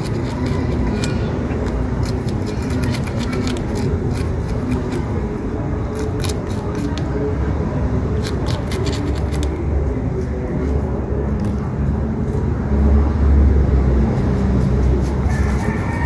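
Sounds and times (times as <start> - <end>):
knife scraping fish skin: 0.0 - 5.2.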